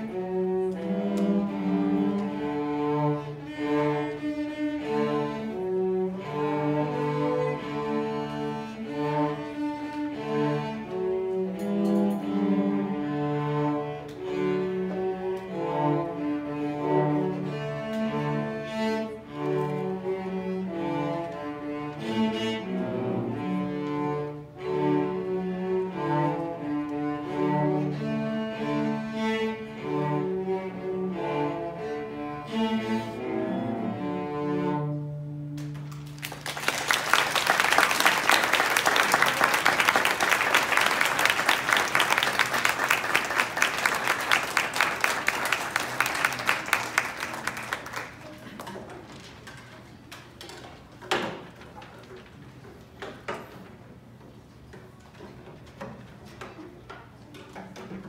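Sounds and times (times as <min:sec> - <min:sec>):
cellos playing: 0:00.0 - 0:48.2
audience applause: 0:35.8 - 0:49.0.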